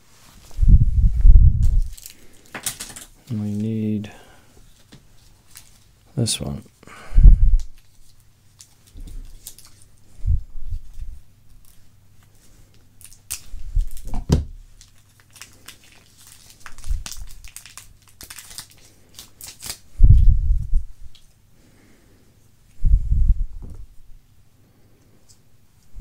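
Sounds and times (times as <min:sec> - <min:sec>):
crinkling and clicking: 0:01.6 - 0:03.8, 0:04.7 - 0:06.0, 0:07.6 - 0:10.0, 0:10.8 - 0:20.2.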